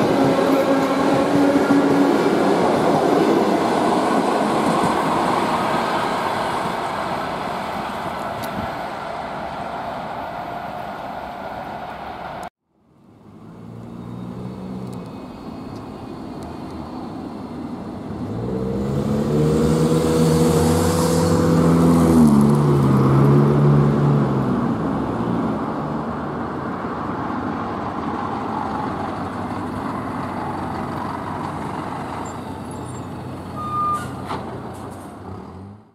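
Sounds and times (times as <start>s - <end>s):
electric train pulling away: 0.0s - 12.5s
electric train passing with whine: 0.0s - 22.9s.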